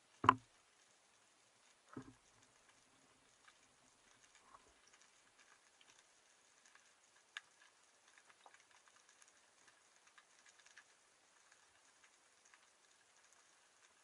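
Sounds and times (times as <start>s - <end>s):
underwater clicks and crackles: 0.0s - 14.0s.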